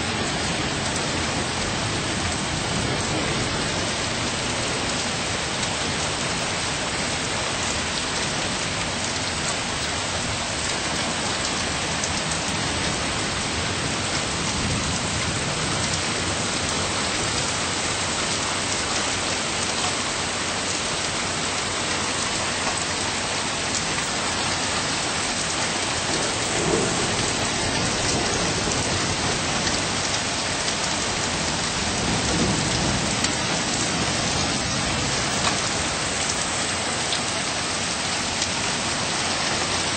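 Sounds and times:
rain falling steadily: 0:00.0 - 0:39.9
low thunder rumbling: 0:00.1 - 0:07.3, 0:10.1 - 0:19.2, 0:23.7 - 0:38.0.

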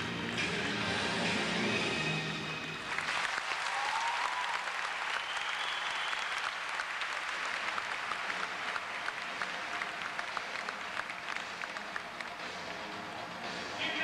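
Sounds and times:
music: 0:00.0 - 0:03.9, 0:07.3 - 0:14.0
audience applauding: 0:02.8 - 0:13.6.

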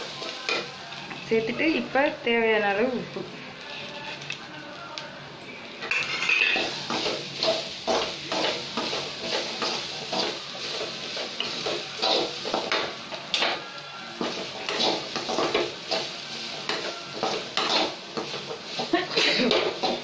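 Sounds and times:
steel spoon scraping metal pan: 0:05.9 - 0:13.5, 0:14.2 - 0:20.0.

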